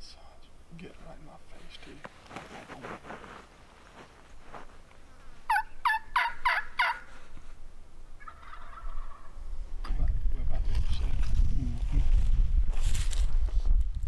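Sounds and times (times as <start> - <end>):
turkey gobbling: 5.5 - 7.2, 8.2 - 9.4.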